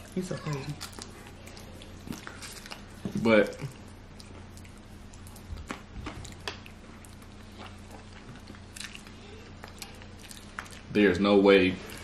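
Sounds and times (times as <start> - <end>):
wet chewing smacks: 0.0 - 11.0
low electrical hum: 0.0 - 12.0.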